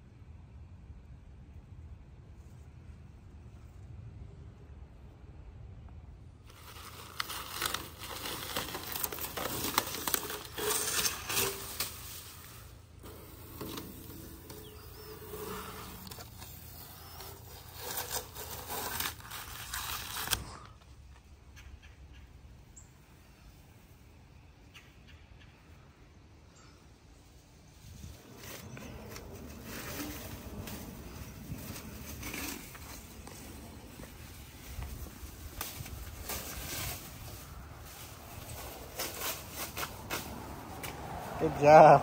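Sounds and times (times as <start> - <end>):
masking tape and plastic tearing: 6.5 - 20.8.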